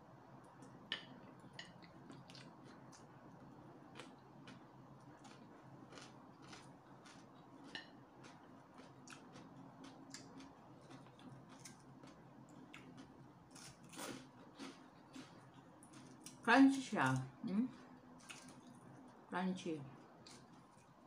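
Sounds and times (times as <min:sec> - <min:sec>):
low steady hum: 0:00.0 - 0:21.0
person chewing crunchy food: 0:01.6 - 0:03.1, 0:03.9 - 0:16.4, 0:18.2 - 0:18.8.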